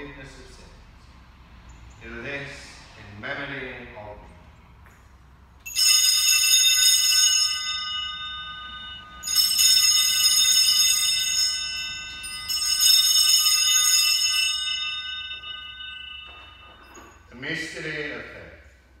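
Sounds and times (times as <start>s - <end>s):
small bells jingling: 5.6s - 18.3s.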